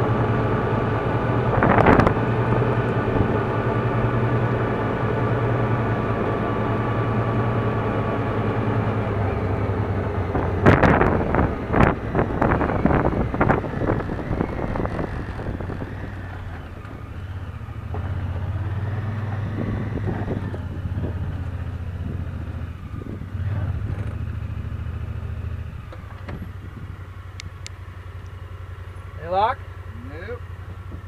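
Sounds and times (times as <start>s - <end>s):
utility vehicle engine running: 0.0s - 31.0s.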